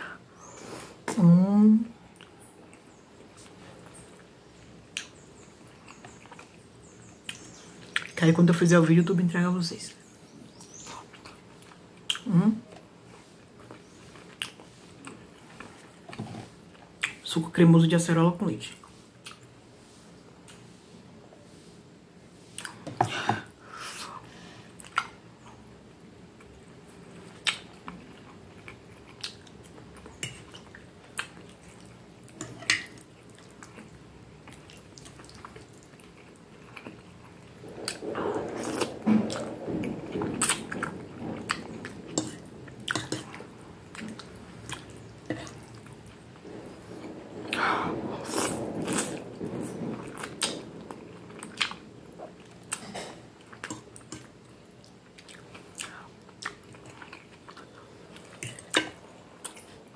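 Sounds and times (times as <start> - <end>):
chewing and wet mouth sounds: 2.0 - 4.3, 4.9 - 8.2, 10.5 - 17.2, 24.8 - 25.6, 26.4 - 39.5, 40.1 - 59.9.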